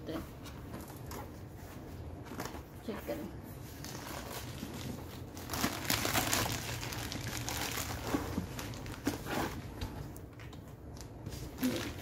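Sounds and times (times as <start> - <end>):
cardboard and plastic crinkling: 3.6 - 12.0.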